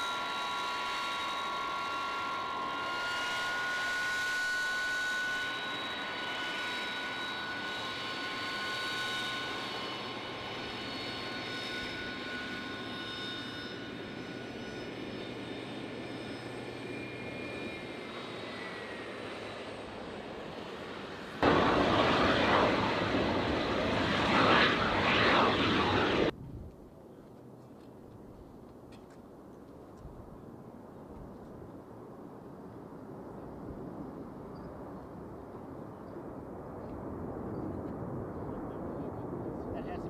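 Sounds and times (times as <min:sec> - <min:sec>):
jet engines whining: 0:00.0 - 0:26.3
loud rushing jet roar: 0:17.0 - 0:26.4.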